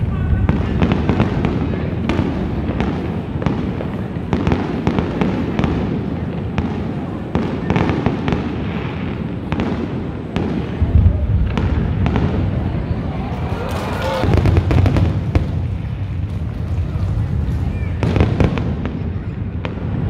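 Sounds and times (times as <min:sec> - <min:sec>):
fireworks bangs and crackles: 0:00.0 - 0:20.0
deep firework boom: 0:08.2 - 0:13.2, 0:14.2 - 0:20.0.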